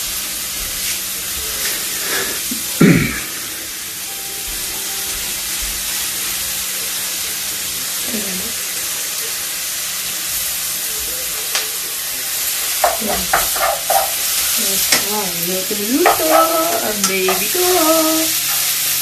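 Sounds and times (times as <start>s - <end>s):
vegetables sizzling in a frying pan: 0.0s - 19.0s
utensil tapping a pan: 12.6s - 18.6s.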